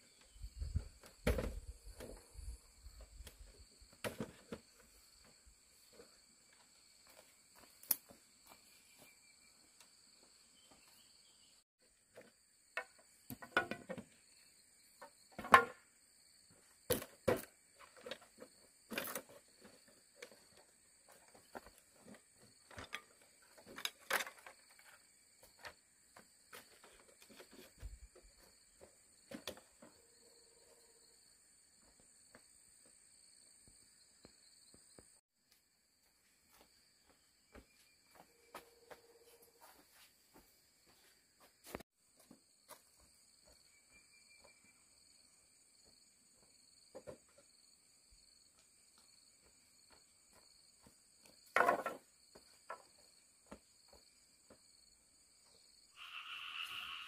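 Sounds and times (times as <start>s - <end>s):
bamboo knocking and clattering: 0.6s - 2.2s, 3.2s - 4.9s, 12.1s - 14.3s, 15.0s - 15.9s, 16.9s - 25.8s, 28.8s - 30.0s, 46.9s - 47.4s, 51.2s - 53.6s
shrill insect chorus: 43.4s - 46.8s, 55.4s - 57.0s.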